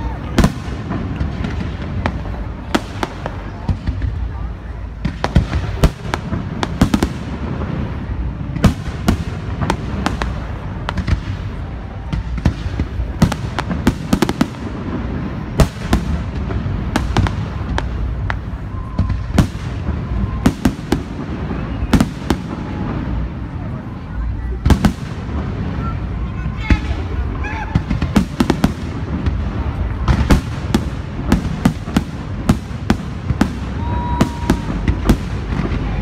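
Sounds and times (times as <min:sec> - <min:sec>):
low rumble of fireworks: 0:00.0 - 0:36.0.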